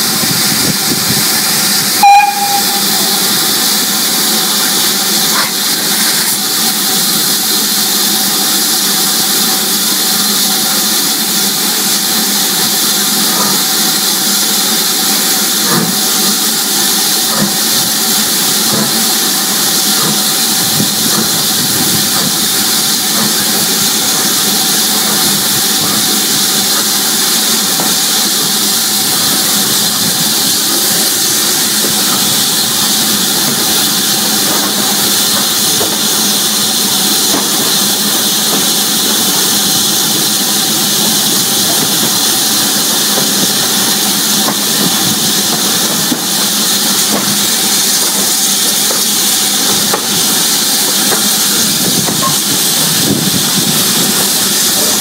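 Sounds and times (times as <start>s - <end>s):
steam locomotive hissing: 0.0s - 55.0s.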